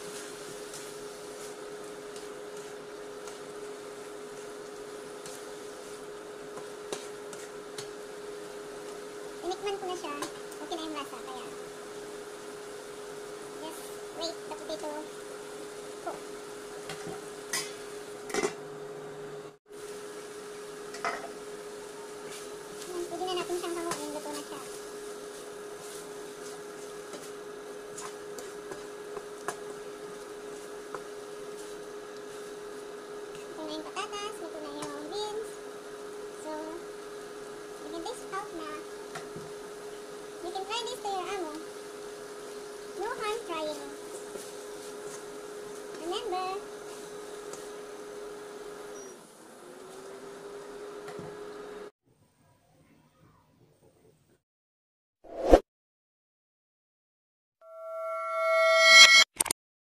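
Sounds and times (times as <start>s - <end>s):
spatula stirring vegetables in wok: 0.0s - 14.1s, 19.8s - 33.6s, 43.8s - 46.1s.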